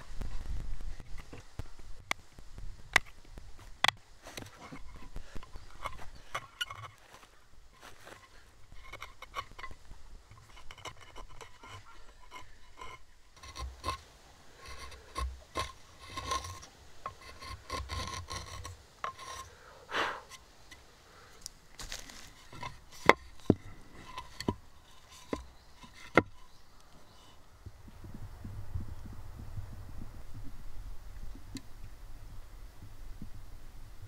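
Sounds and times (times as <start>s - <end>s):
chisel shaving wood: 10.3s - 19.5s.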